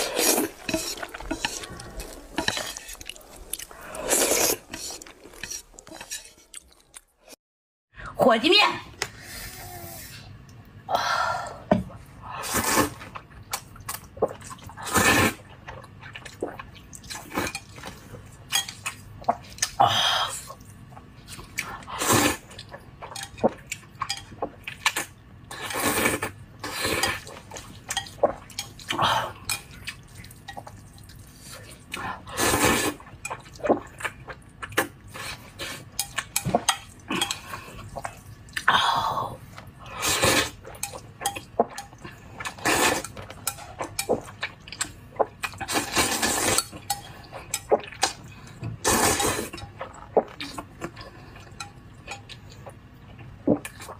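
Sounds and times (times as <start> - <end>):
wet slurping of noodles: 0.0 - 6.3, 32.3 - 33.0
chewing: 0.0 - 7.2.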